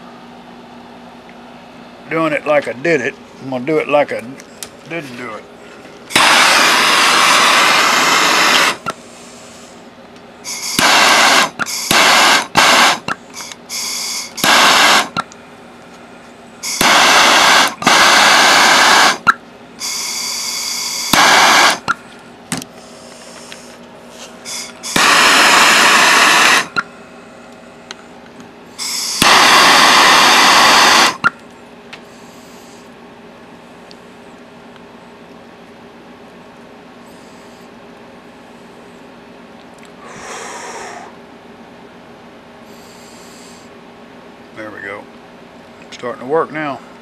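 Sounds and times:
gas torch hissing flame: 6.1s - 15.4s, 16.6s - 22.0s, 22.8s - 26.9s, 28.7s - 31.3s, 40.0s - 41.2s.

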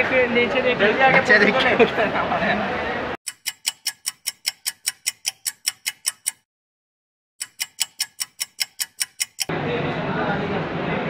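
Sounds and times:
clock ticking: 3.3s - 6.5s, 7.4s - 9.5s.

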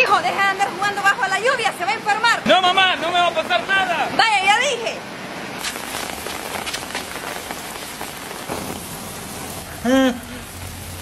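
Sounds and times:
hose spraying water on grass: 5.6s - 11.0s.

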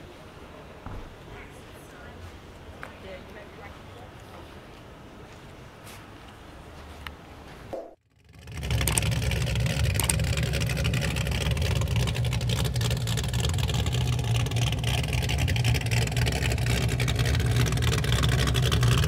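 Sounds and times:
engine running steadily: 8.2s - 19.0s.

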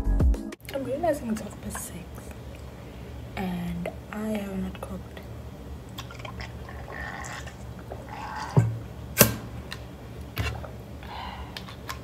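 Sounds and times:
person swallowing: 5.9s - 8.9s.

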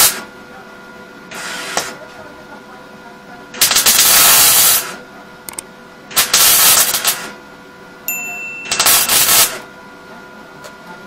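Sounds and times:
welding arc burning: 3.6s - 4.9s, 6.1s - 7.3s, 8.8s - 9.6s.

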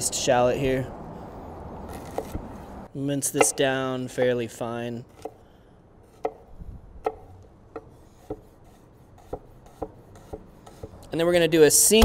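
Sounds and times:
knife chopping on wooden board: 9.2s - 11.0s.

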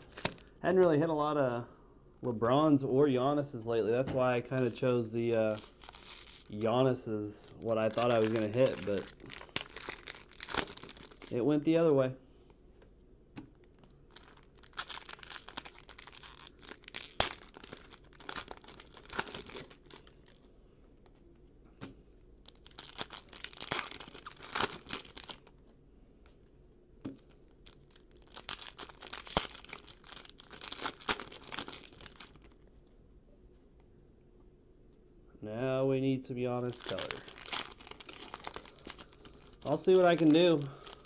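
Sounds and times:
foil wrapper crinkling and tearing: 0.0s - 0.5s, 4.4s - 12.0s, 13.6s - 20.5s, 22.4s - 25.6s, 27.2s - 32.8s, 36.6s - 41.0s.

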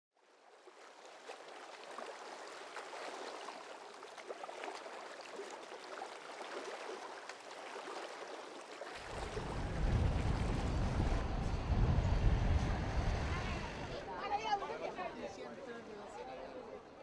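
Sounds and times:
water lapping and splashing: 0.2s - 15.1s.

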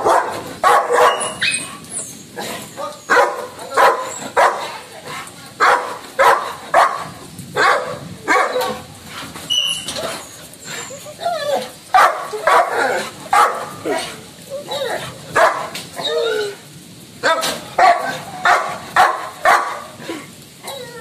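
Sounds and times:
dog barking angrily: 0.0s - 1.8s, 2.4s - 8.9s, 11.9s - 14.2s, 14.8s - 15.9s, 17.2s - 20.1s.

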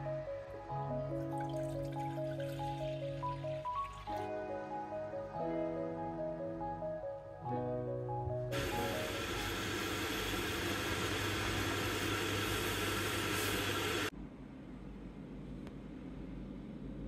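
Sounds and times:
water boiling in a saucepan: 8.6s - 14.1s.

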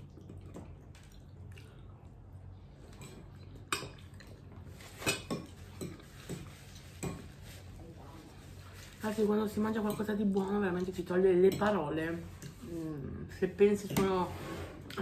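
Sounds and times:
person chewing pasta: 0.0s - 4.8s.

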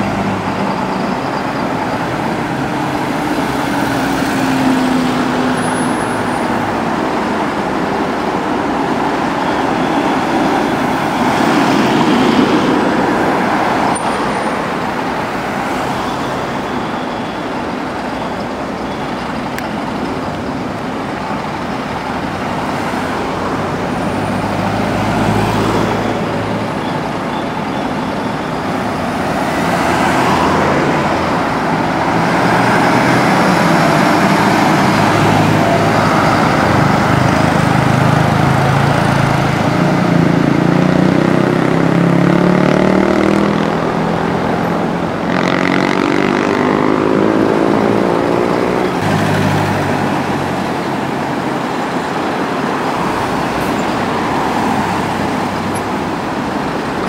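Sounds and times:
bus engines running: 0.0s - 57.0s
tyre and road noise: 0.0s - 57.0s
vehicle passing: 29.2s - 51.2s.

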